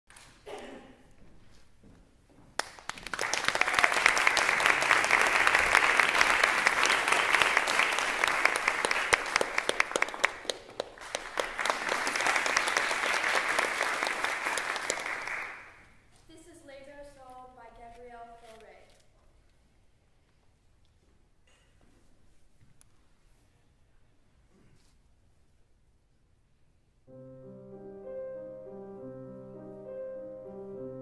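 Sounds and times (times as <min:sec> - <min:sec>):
audience applauding: 0:02.6 - 0:15.8.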